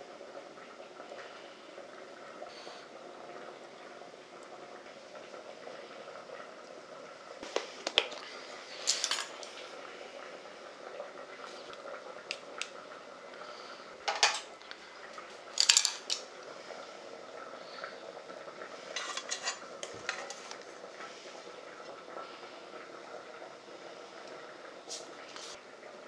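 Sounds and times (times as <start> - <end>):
utensils clinking against ceramic bowls: 8.8 - 9.4, 14.1 - 14.5, 15.6 - 16.2, 19.0 - 20.4.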